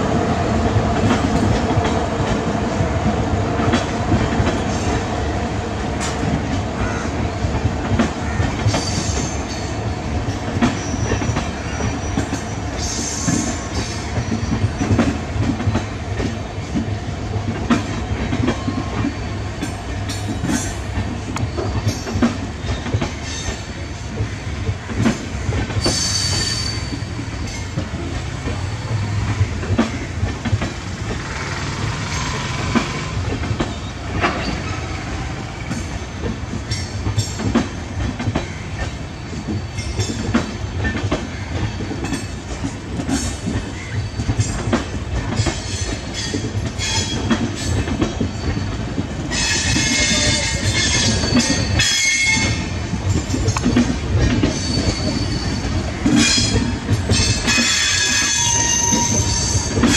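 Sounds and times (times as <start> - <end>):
train wheels clattering over joints: 0.6 - 59.9
high wheel squeal: 25.8 - 27.6, 31.2 - 34.9, 54.5 - 56.6, 57.2 - 59.9.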